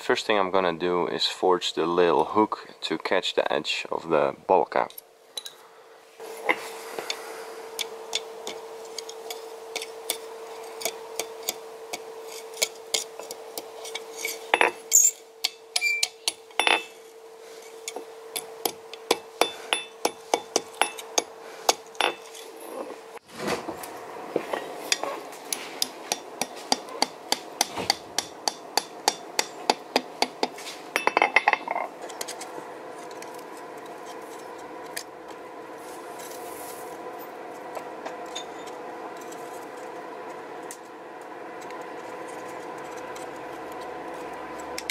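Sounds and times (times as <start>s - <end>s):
steady hum: 0.0s - 44.9s
hammer ringing on anvil: 19.1s - 21.3s.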